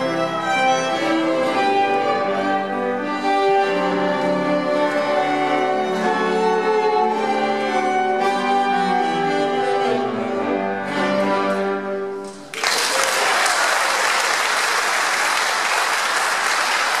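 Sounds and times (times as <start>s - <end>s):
audience applause: 12.3s - 17.0s.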